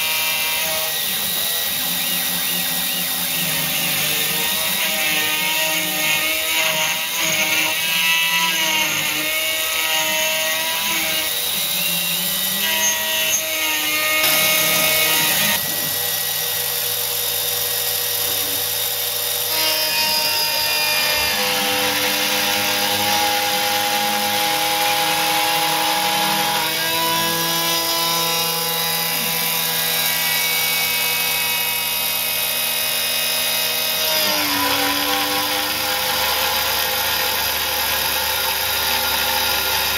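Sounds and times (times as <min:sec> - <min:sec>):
cutter chatter on metal: 0:00.0 - 0:32.0
router spindle whine: 0:00.0 - 0:39.9.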